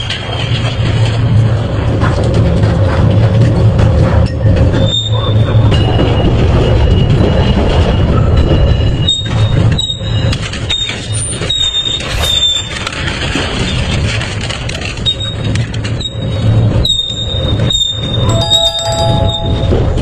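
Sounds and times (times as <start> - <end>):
high-pitched metallic squeals: 6.8 - 12.9, 16.0 - 20.0.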